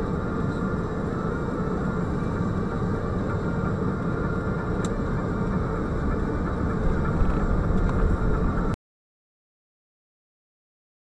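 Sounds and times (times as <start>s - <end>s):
car engine and road noise: 0.0s - 8.8s.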